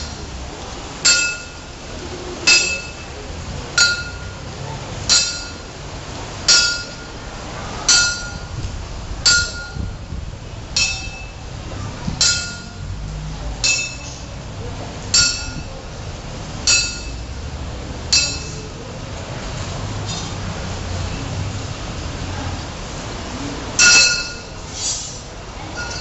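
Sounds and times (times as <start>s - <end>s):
metal rod striking tiled floor: 2.5s - 3.0s, 12.2s - 12.8s, 13.6s - 14.2s, 15.2s - 15.7s, 18.1s - 18.6s, 23.8s - 24.4s.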